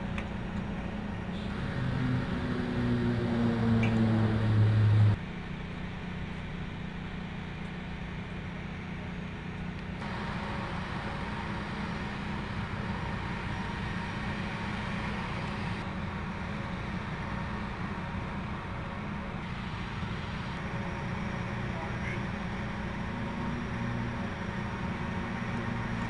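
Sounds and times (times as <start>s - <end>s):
mechanical hum of machinery: 0.0s - 26.0s
loud low drone: 0.9s - 5.5s.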